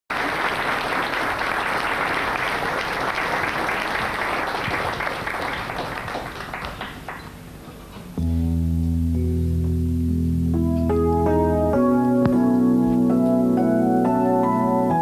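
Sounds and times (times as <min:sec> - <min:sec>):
audience applause: 0:00.1 - 0:07.4
sustained keyboard chord: 0:08.0 - 0:15.0.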